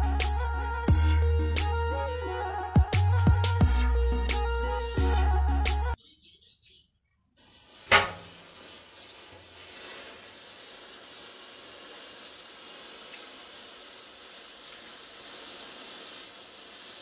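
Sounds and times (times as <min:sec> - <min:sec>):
matchsticks burning with hiss: 0:07.4 - 0:17.0.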